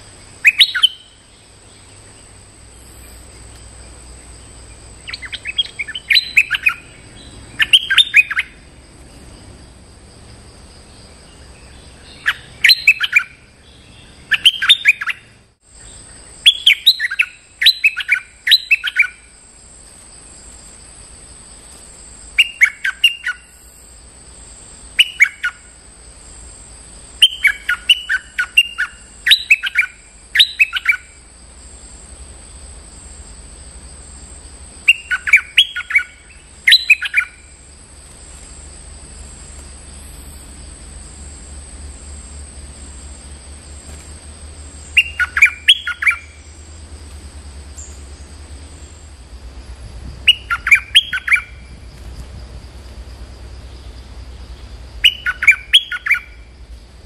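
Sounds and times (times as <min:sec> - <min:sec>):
bird singing bubbly phrases: 0:00.4 - 0:02.2, 0:05.0 - 0:08.6, 0:11.6 - 0:15.3, 0:16.4 - 0:19.2, 0:27.2 - 0:31.1, 0:34.9 - 0:37.4, 0:44.9 - 0:46.6, 0:50.3 - 0:51.7, 0:55.0 - 0:56.4.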